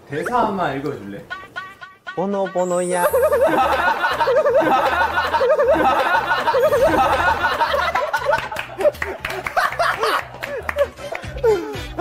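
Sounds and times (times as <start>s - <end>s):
young men laughing: 2.9s - 12.0s.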